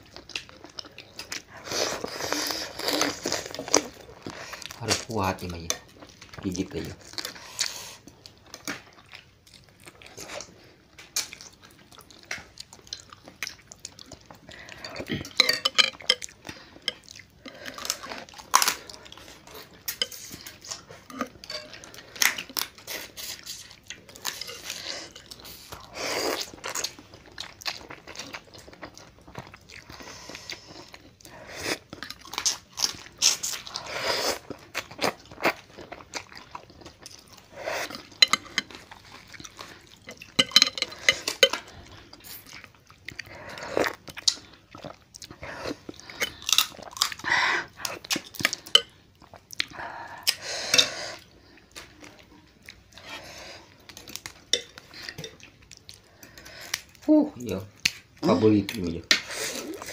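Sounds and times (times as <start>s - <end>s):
chewing: 0.0s - 59.9s
crab shells crunching: 43.9s - 48.9s.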